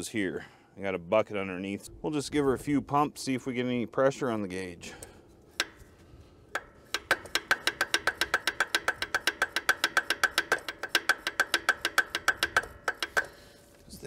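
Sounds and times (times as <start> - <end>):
hand pump metallic clicks: 4.9 - 13.8.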